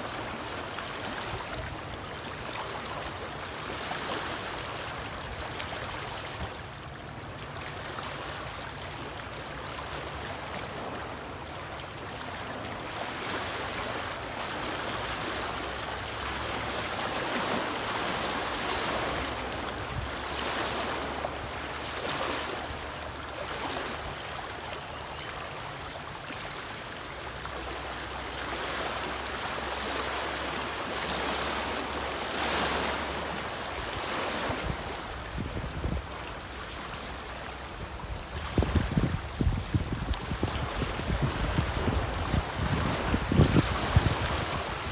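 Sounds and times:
waves splashing against rocks: 27.8 - 44.9.

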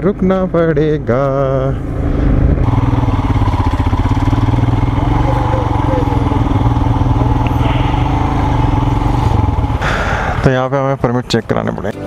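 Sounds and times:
motorcycle engine at low revs: 0.0 - 12.0
faint voices: 4.8 - 9.6.

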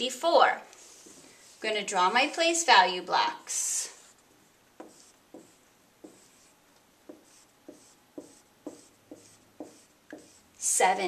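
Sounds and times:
marker drawing on whiteboard: 0.8 - 2.4, 3.8 - 10.8.

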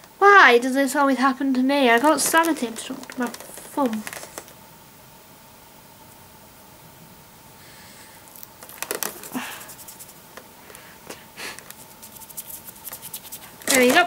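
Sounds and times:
faint room hum: 0.0 - 14.0
plastic packaging crinkling: 1.9 - 4.6, 8.4 - 10.0, 11.6 - 14.0.

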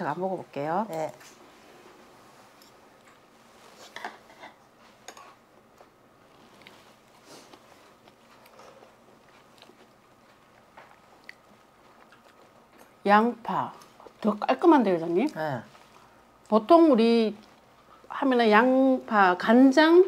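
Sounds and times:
chewing and slurping: 7.4 - 13.0.

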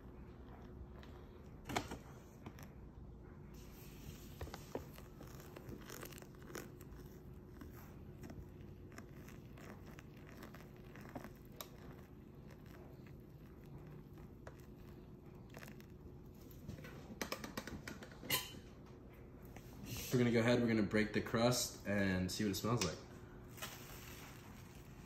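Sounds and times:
water pouring onto coffee grounds: 3.6 - 16.7, 23.4 - 25.0.

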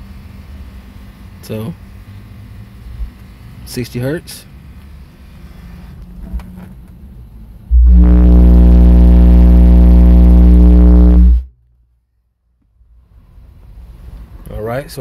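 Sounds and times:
low hum: 7.6 - 11.5
deep subwoofer test tone: 7.7 - 11.5.

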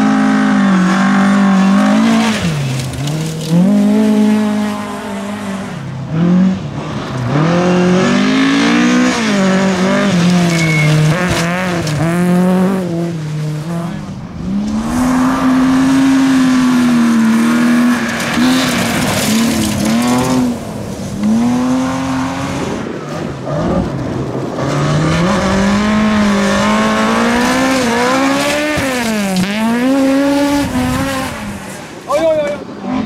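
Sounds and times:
rally car engines revving: 0.0 - 33.0.

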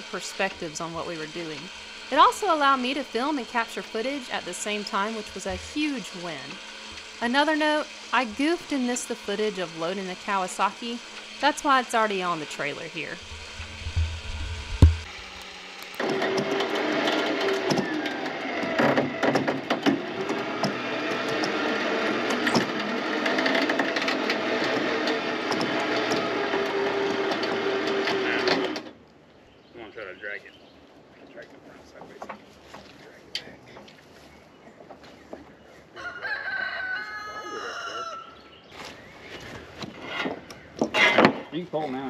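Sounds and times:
electric winch motor running: 0.0 - 29.0
rooster crowing: 35.9 - 38.4.

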